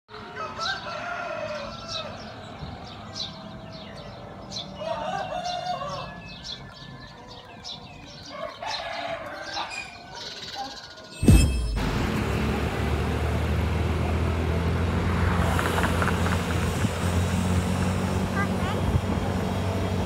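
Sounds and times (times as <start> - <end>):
roosters crowing: 0.1 - 11.2
small birds chirping: 0.6 - 11.4.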